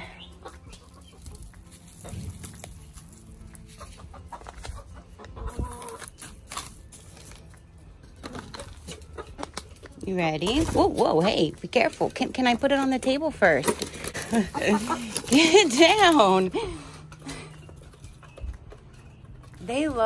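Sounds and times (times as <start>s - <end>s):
hens clucking quietly: 3.1s - 6.2s.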